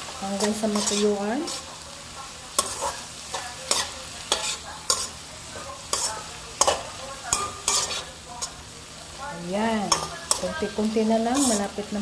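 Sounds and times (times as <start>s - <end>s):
metal spatula scraping a wok: 0.0s - 1.8s, 2.6s - 5.2s, 5.8s - 8.6s, 9.9s - 12.0s
vegetables sizzling: 0.0s - 12.0s.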